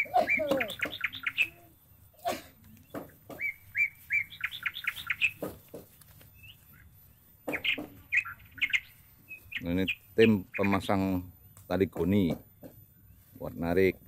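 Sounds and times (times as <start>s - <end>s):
songbird chirping: 0.0s - 14.0s
dull knocks: 5.3s - 5.9s.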